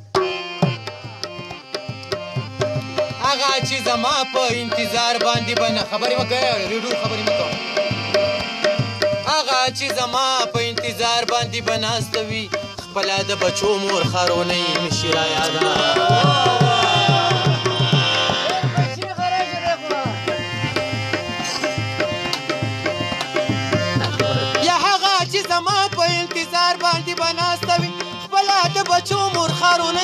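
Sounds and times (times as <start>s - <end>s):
harmonium: 0.0s - 30.0s
percussion beating rhythm: 0.0s - 30.0s
man singing folk song: 3.2s - 7.6s, 9.2s - 20.3s, 24.0s - 30.0s.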